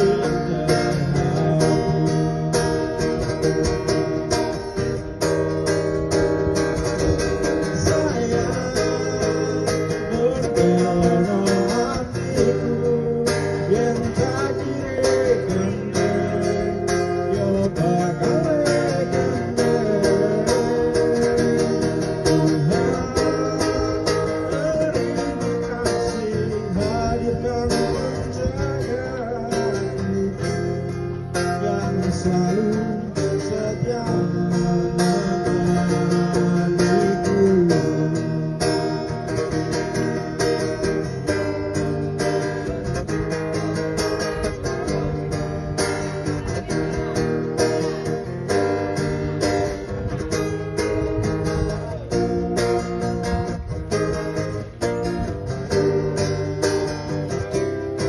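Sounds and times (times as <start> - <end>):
person singing: 0.0 - 2.9, 7.4 - 38.6
acoustic guitar strumming: 0.0 - 58.0.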